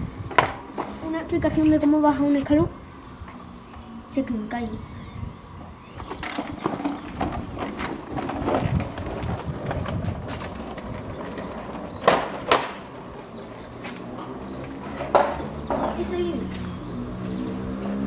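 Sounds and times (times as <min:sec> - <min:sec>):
caster board rolling over tiles: 0:06.0 - 0:16.1.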